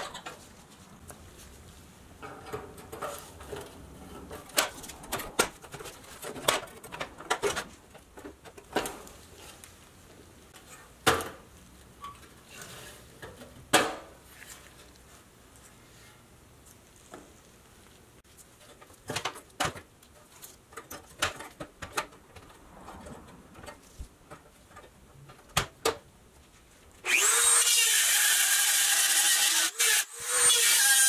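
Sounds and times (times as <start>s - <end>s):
rotary tool grinding steel: 27.0s - 31.0s.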